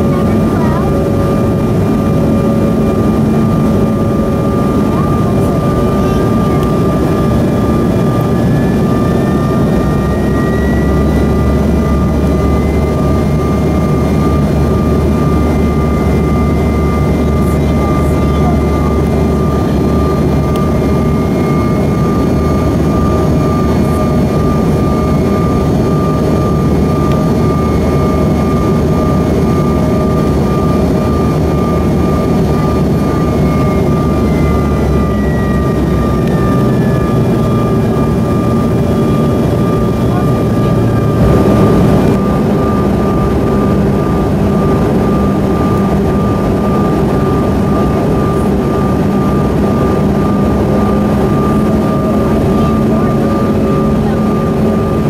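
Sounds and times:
airliner cabin rumble: 0.0 - 55.0
jet engine whining tones: 0.0 - 55.0.

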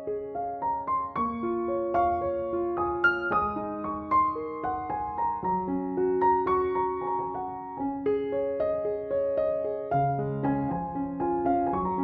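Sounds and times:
gentle piano music: 0.0 - 12.0.

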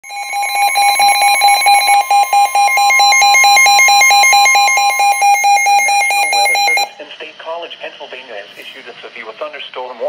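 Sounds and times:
rapid alert beeping: 0.0 - 7.0
steady warning tone: 0.0 - 7.0.

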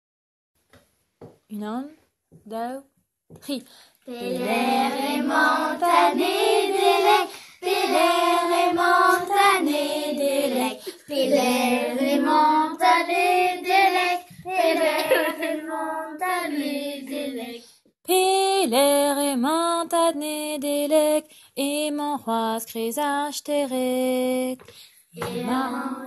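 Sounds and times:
children singing together: 4.1 - 17.6, 25.2 - 26.0.

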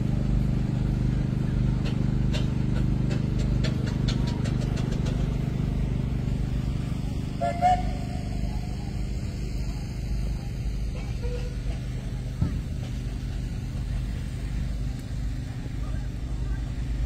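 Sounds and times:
engine running steadily: 0.0 - 17.0.

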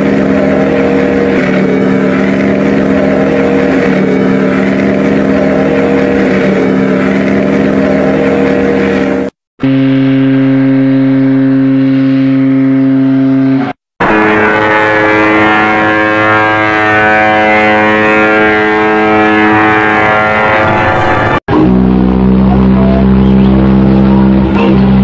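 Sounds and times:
ship's whistle blast: 0.0 - 24.4
chord ship's whistle blast: 8.1 - 21.4.

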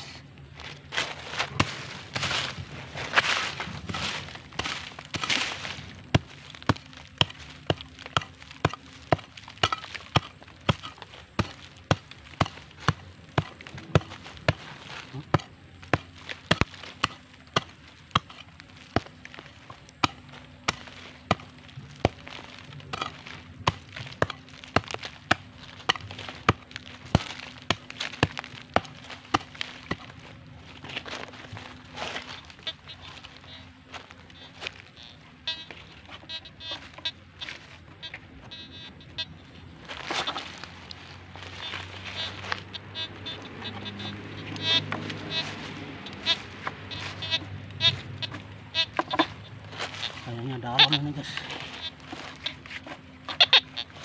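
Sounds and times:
hand hoe chopping into earth: 3.1 - 30.2.

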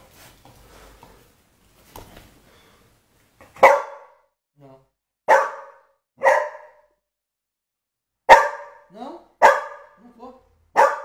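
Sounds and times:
dog barking: 3.6 - 4.3, 5.3 - 7.0, 8.3 - 10.0, 10.7 - 11.0.

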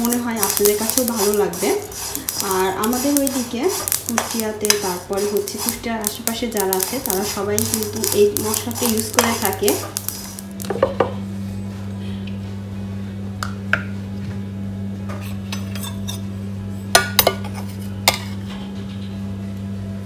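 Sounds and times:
metal spoon scraping a pan: 0.0 - 10.6, 15.2 - 16.2
steady low hum: 0.0 - 20.0.

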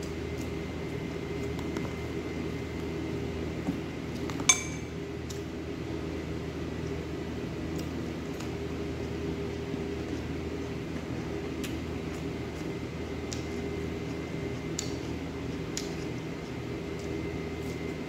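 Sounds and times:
steady low hum: 0.0 - 18.0
metal utensil clinking on dish: 4.5 - 4.9.

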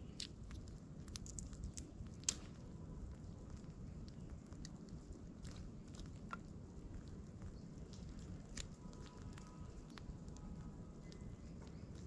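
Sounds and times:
kindling fire crackling: 0.0 - 12.0
low steady rumble: 0.0 - 12.0.

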